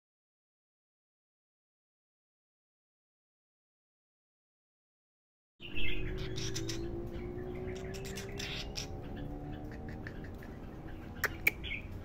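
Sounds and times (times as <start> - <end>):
weaver bird chirps: 5.6 - 12.0.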